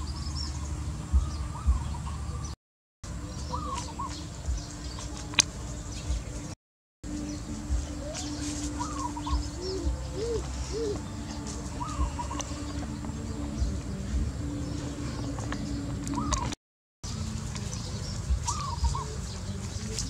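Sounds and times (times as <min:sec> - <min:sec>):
birds calling: 0:00.0 - 0:20.0.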